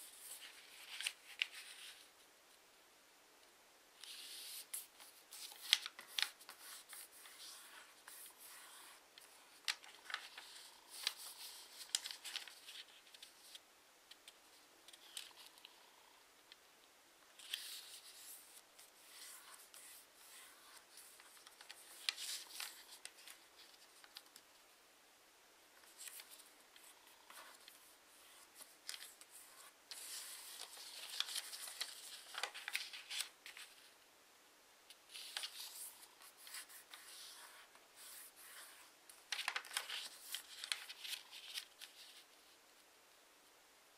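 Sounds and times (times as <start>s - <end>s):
paper rustling and crinkling: 0.0s - 2.1s, 4.0s - 13.6s, 17.4s - 24.4s, 25.8s - 33.9s, 35.1s - 42.6s.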